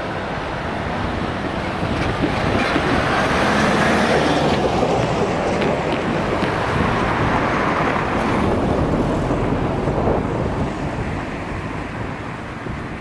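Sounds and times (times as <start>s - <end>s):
car driving past: 2.4s - 5.8s.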